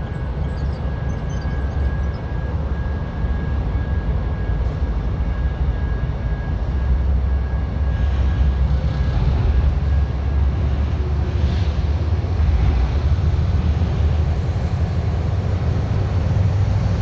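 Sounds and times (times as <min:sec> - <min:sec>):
faint steady whine: 0:00.0 - 0:08.8
locomotive engine rumble: 0:00.0 - 0:17.0.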